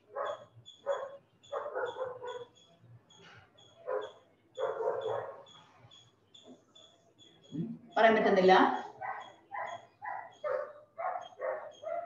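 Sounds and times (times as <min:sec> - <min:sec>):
dog barking: 0:00.0 - 0:02.7, 0:03.8 - 0:05.6, 0:08.8 - 0:12.0.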